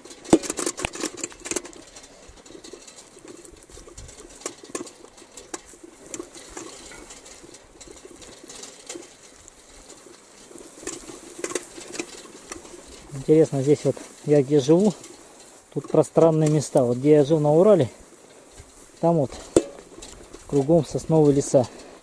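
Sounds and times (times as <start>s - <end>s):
bicycle rattling over bumps: 0.0s - 22.0s.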